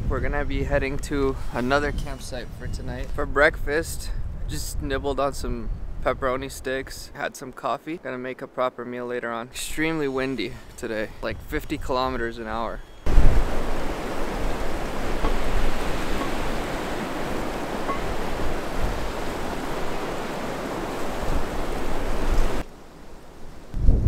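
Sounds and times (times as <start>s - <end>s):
strong wind rushing through trees: 0.0s - 6.9s, 9.7s - 24.0s
wind rumbling on microphone: 0.0s - 7.0s, 11.1s - 24.0s.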